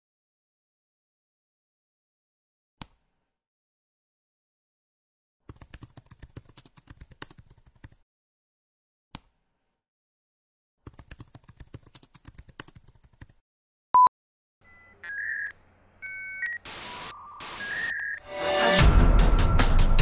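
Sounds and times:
electronic bleeps: 14.0s - 18.3s
static hiss bursts: 16.6s - 18.0s
music: 17.6s - 20.0s.

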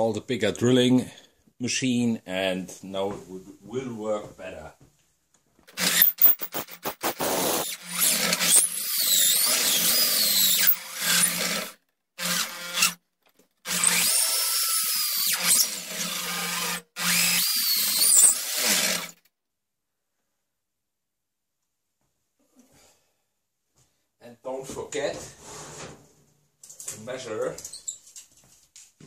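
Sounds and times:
electric drill boring into wood: 5.7s - 13.0s, 13.6s - 19.2s.

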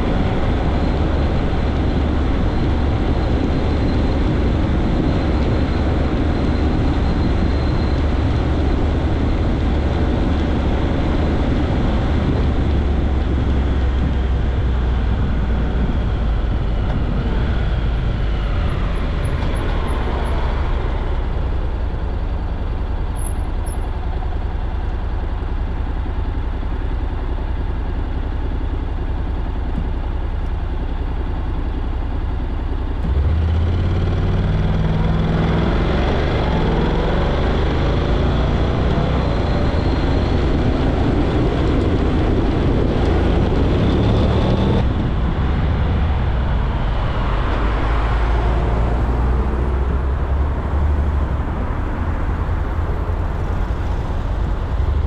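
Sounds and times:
vehicle engine and road rumble: 0.0s - 55.0s.

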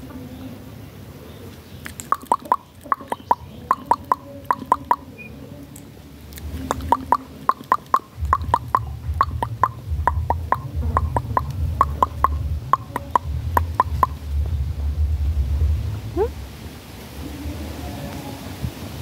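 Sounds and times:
sharp clicks with falling chirp: 1.8s - 5.1s, 6.4s - 14.2s
low rumble: 3.4s - 19.0s.

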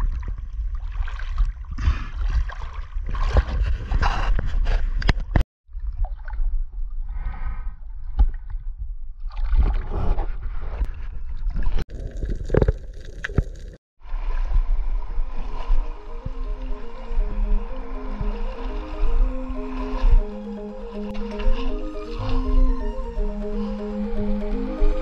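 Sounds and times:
seawater sloshing and splashing: 0.0s - 4.8s
shallow water rushing at shore: 14.0s - 25.0s
background music: 15.8s - 25.0s.

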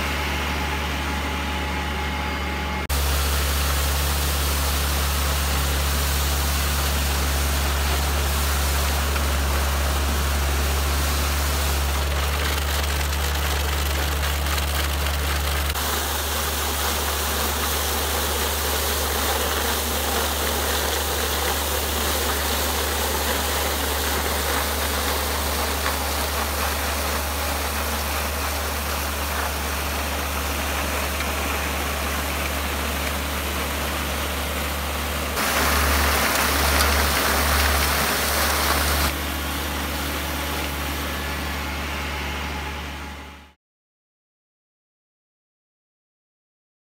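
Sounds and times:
tractor engine humming: 0.0s - 43.3s
steel brush scraping ground: 2.9s - 34.6s, 35.3s - 40.9s.

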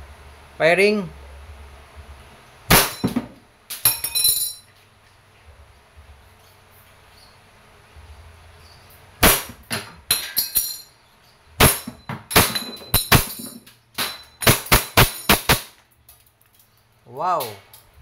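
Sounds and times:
pellets striking metal target: 2.7s - 4.6s, 9.2s - 10.9s, 11.6s - 15.8s
airsoft pistol firing: 9.2s - 9.6s, 14.0s - 15.8s
person talking: 17.1s - 17.7s.

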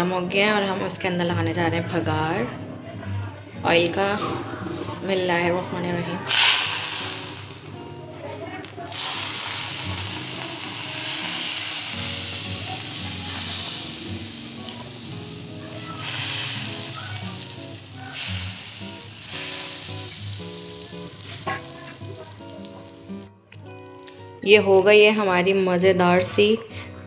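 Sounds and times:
hot oil sizzling: 6.3s - 23.3s.

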